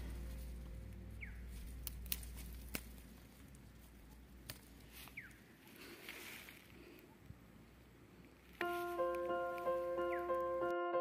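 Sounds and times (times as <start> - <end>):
leaves rustling: 0.0 - 10.6
plant stems snapping: 1.2 - 5.4.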